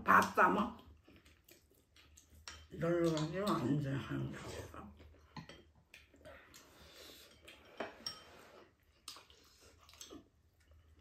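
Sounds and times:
utensils clicking against bowls: 0:02.2 - 0:03.9.

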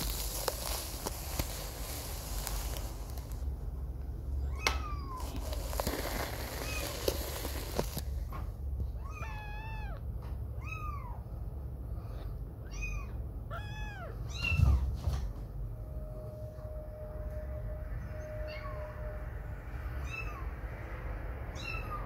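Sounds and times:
kitten meowing: 0:09.0 - 0:10.0, 0:12.6 - 0:14.8, 0:19.9 - 0:20.5, 0:21.5 - 0:22.0.

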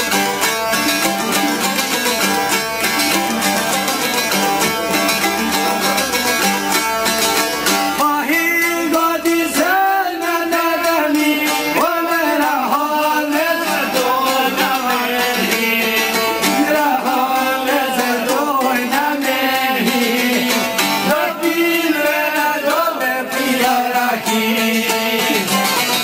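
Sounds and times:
plucked lutes strumming: 0:00.0 - 0:26.0
man singing: 0:08.0 - 0:26.0.

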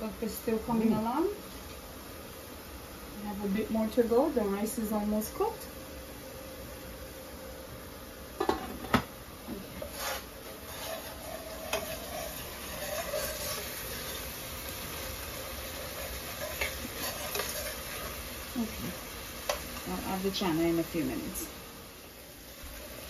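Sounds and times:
food sizzling in a pan: 0:00.0 - 0:23.0
metal spoon scraping a pan: 0:09.7 - 0:18.3.

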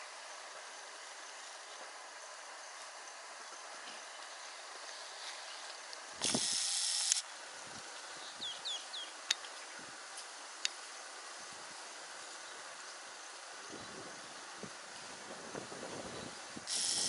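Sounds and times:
harsh hissing rasp: 0:06.2 - 0:07.2, 0:15.8 - 0:17.0
sharp clicks: 0:06.2 - 0:07.3
bird chirps: 0:08.1 - 0:09.2.

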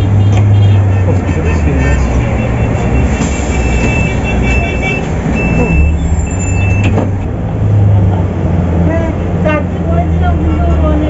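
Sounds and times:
bus diesel engine humming: 0:00.0 - 0:11.0
high electronic beep: 0:02.3 - 0:07.0.

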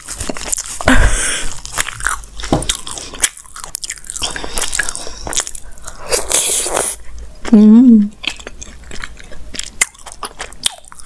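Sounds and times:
chewing with wet mouth clicks: 0:01.6 - 0:11.0.

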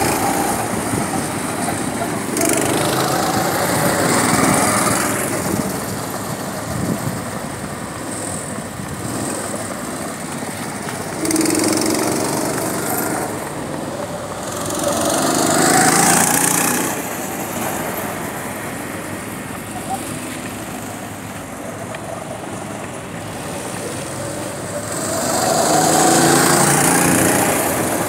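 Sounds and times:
go-kart engines buzzing: 0:00.0 - 0:28.0.

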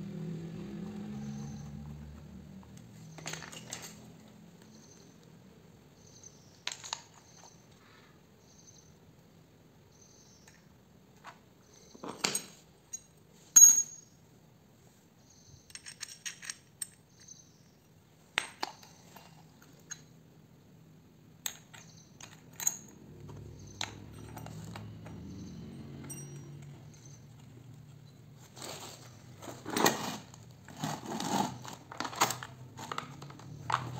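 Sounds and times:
small metal parts clinking: 0:03.0 - 0:04.2, 0:06.3 - 0:07.8, 0:11.9 - 0:14.1, 0:15.5 - 0:20.1, 0:21.4 - 0:30.2, 0:30.8 - 0:33.9.

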